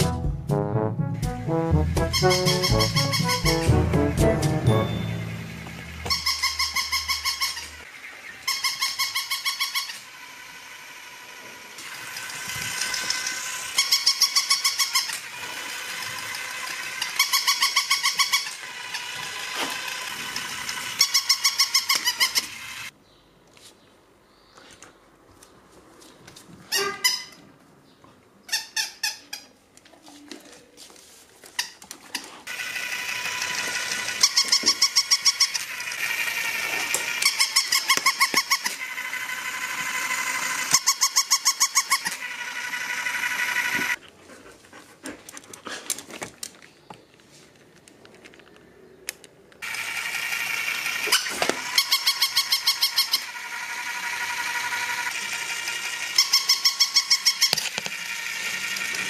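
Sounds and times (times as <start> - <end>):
squeaky electronic yaps: 2.0 - 3.7, 6.0 - 10.0
toy motor whirring: 2.0 - 3.7, 4.8 - 22.9, 31.6 - 44.0, 49.6 - 59.0.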